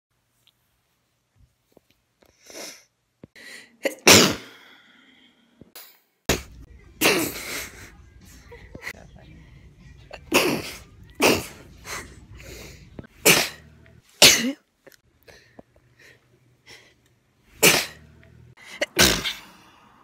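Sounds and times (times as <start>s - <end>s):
woman sneezing: 10.2s - 12.1s, 13.2s - 13.6s, 17.6s - 18.0s, 18.8s - 19.6s.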